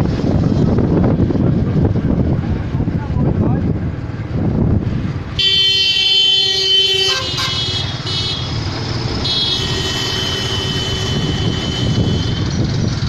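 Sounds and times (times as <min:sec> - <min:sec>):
truck engine and road rumble: 0:00.0 - 0:13.0
vehicle horn blasts: 0:05.4 - 0:08.6, 0:09.2 - 0:12.5.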